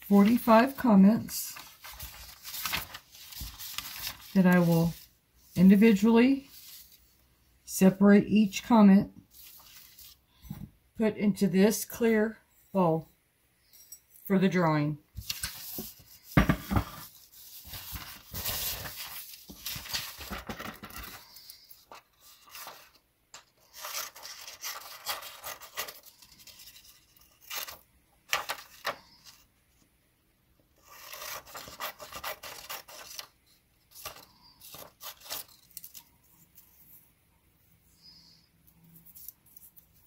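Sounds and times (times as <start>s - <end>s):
paper rustling: 0.0s - 5.1s, 6.4s - 7.1s, 9.3s - 10.2s, 15.2s - 29.4s, 30.8s - 37.0s.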